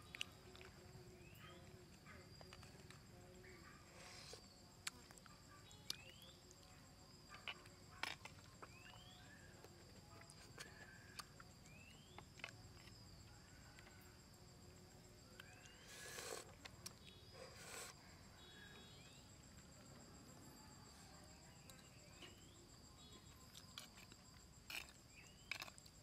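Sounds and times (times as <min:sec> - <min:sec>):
insect drone: 0:00.0 - 0:26.0
rising insect chirp: 0:10.6 - 0:26.0.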